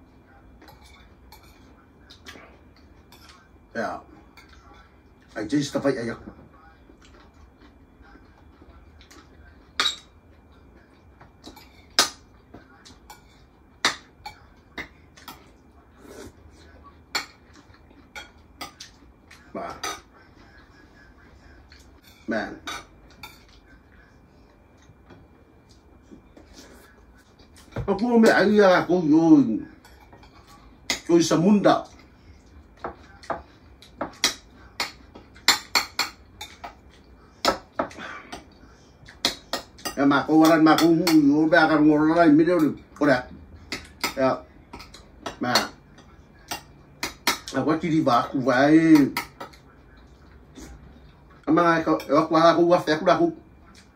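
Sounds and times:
cutlery clinking on plates: 0:09.1 - 0:10.2, 0:11.3 - 0:15.5, 0:29.8 - 0:31.1.

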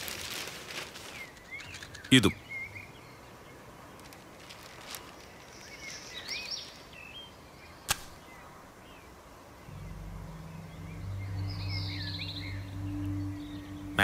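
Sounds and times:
birds chirping: 0:01.0 - 0:14.0
match strike: 0:07.9 - 0:08.2
low steady musical tones: 0:09.6 - 0:14.0.

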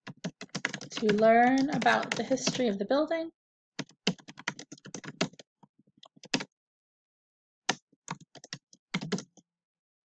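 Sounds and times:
typing on computer keyboard: 0:00.0 - 0:02.6, 0:03.8 - 0:05.4, 0:06.0 - 0:06.5, 0:08.1 - 0:09.4.

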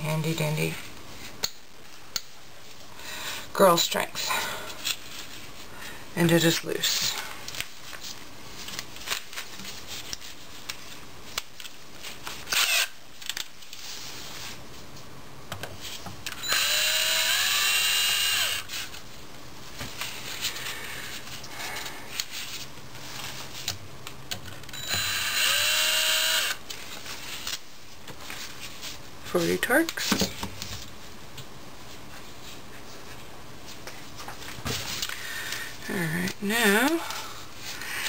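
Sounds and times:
cordless drill whining: 0:12.5 - 0:12.9, 0:16.4 - 0:18.7, 0:24.7 - 0:26.6.

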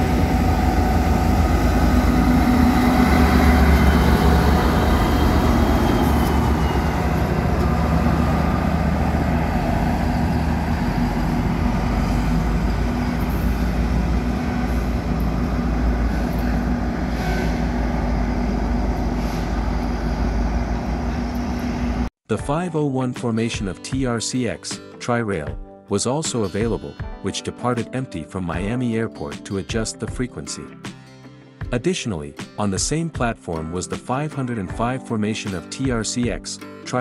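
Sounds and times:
diesel locomotive droning: 0:00.0 - 0:22.1.

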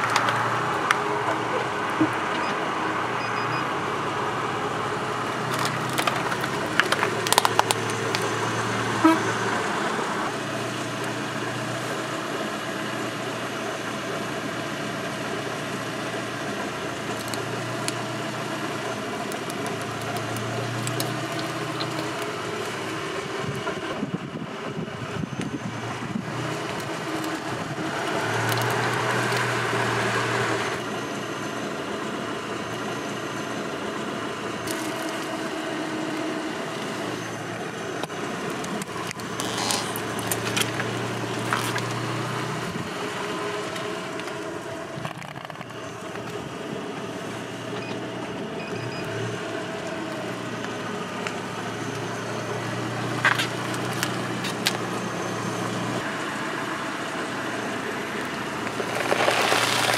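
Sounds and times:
car engine running: 0:00.0 - 0:59.9
wax candles cracking under tyre: 0:05.4 - 0:08.5, 0:17.0 - 0:22.8, 0:26.5 - 0:29.6, 0:34.6 - 0:35.5, 0:38.4 - 0:42.3, 0:53.0 - 0:54.9, 0:58.6 - 0:59.9.

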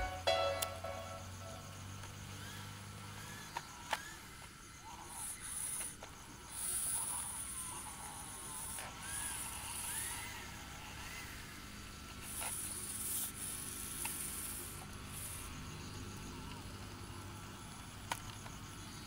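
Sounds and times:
toy electric motor hissing: 0:02.0 - 0:19.0.

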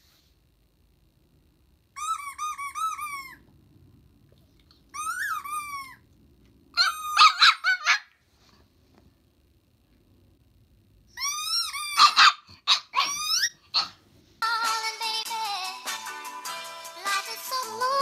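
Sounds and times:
squeaky toy squeaks: 0:02.0 - 0:03.4, 0:04.9 - 0:06.0, 0:06.8 - 0:08.0, 0:11.1 - 0:13.9.

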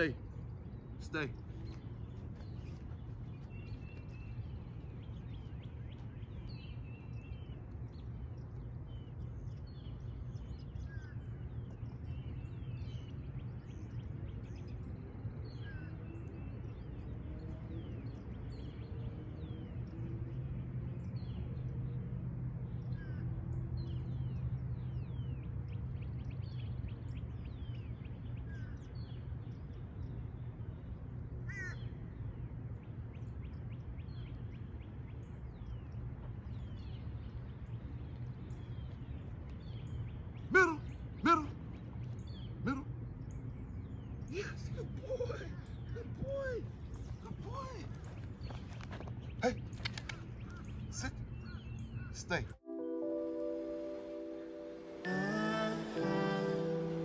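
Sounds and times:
birds chirping and calling: 0:00.0 - 0:19.9, 0:22.8 - 0:52.6
harsh bird call: 0:40.4 - 0:41.8.

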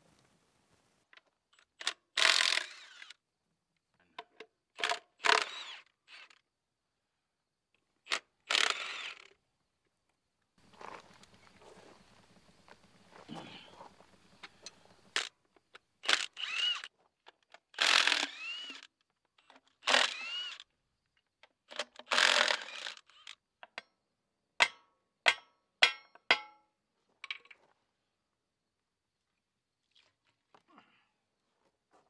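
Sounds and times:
cordless driver whining: 0:02.2 - 0:03.2, 0:04.8 - 0:06.4, 0:08.1 - 0:09.4, 0:16.0 - 0:16.9, 0:17.7 - 0:19.0, 0:19.8 - 0:20.6, 0:21.7 - 0:23.4.

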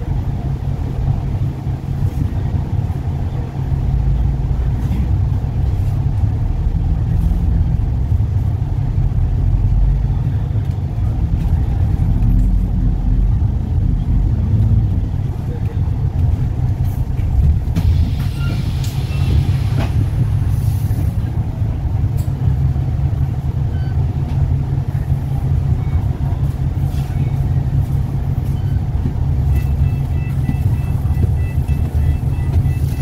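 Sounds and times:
bus engine idling: 0:00.0 - 0:33.0
two-tone electronic beep: 0:29.5 - 0:33.0.

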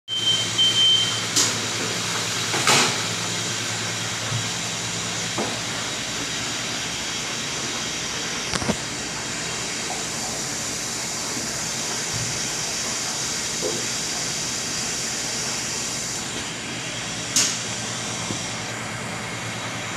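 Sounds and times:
high electronic beep: 0:00.1 - 0:01.2
kitchen ventilation hissing: 0:00.1 - 0:19.9.

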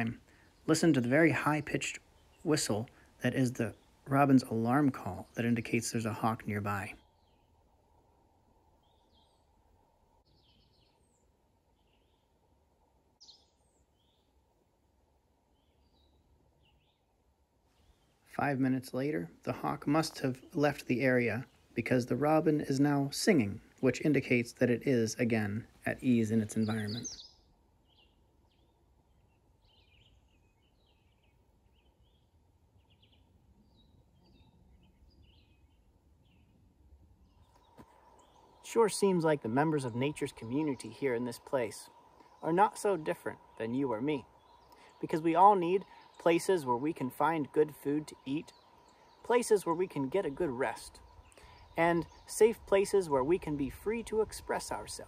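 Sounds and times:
robin singing: 0:00.0 - 0:07.7, 0:08.7 - 0:12.4, 0:13.2 - 0:14.4, 0:15.5 - 0:17.1, 0:17.7 - 0:55.0
low steady hiss: 0:00.0 - 0:55.0
faint bird chirps: 0:08.5 - 0:14.4, 0:25.3 - 0:55.0.

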